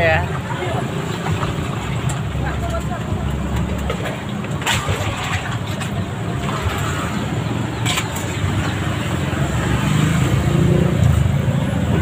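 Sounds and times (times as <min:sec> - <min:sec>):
road traffic drone: 0:00.0 - 0:12.0.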